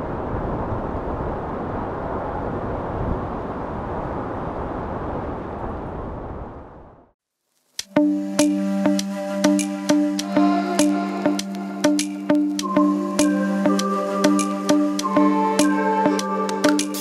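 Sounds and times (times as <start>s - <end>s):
low rumbling noise: 0.0s - 7.2s.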